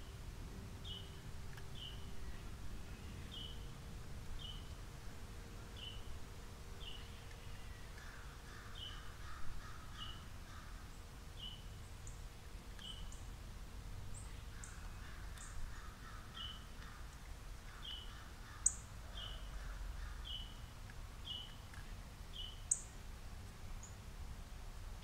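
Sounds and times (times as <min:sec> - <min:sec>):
harsh lower bird calls: 0:06.8 - 0:12.2, 0:14.2 - 0:21.6.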